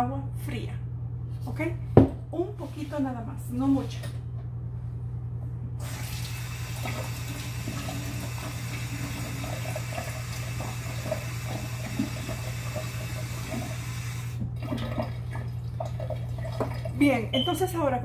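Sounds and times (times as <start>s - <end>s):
kitchen tap running: 5.8s - 17.4s.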